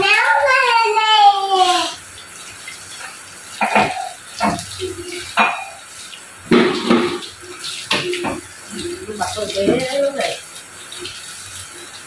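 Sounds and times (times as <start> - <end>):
tap water running into sink: 0.0 - 12.0
splashes and knocks: 3.0 - 5.8, 6.4 - 10.3.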